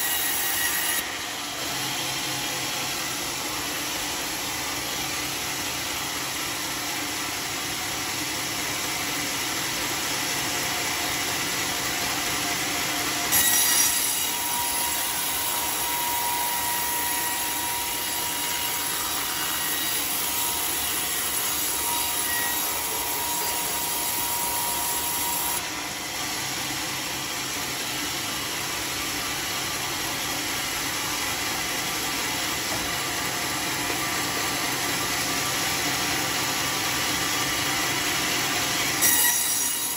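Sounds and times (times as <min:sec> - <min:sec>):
saw blade cutting wood: 0:00.0 - 0:08.2, 0:08.8 - 0:39.9
band sawmill running: 0:00.0 - 0:39.9.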